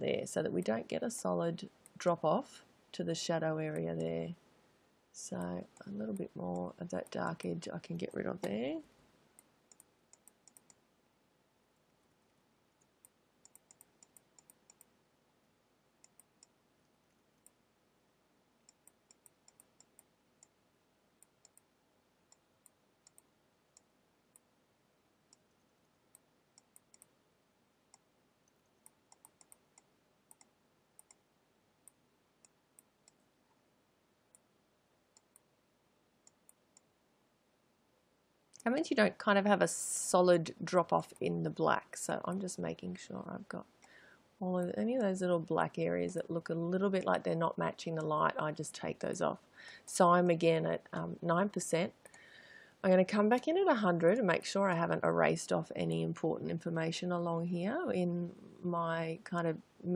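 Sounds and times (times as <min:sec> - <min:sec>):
computer mouse clicks: 0:09.4 - 0:10.8, 0:12.8 - 0:14.9, 0:16.0 - 0:16.6, 0:18.6 - 0:20.6, 0:21.2 - 0:21.7, 0:22.3 - 0:24.5, 0:25.3 - 0:27.1, 0:27.9 - 0:31.2, 0:35.1 - 0:35.5, 0:36.2 - 0:36.9.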